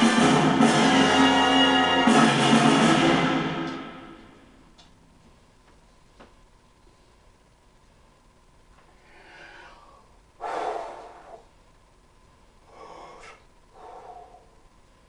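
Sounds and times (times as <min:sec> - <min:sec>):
man breathing out: 0:08.9 - 0:11.5, 0:12.6 - 0:14.7.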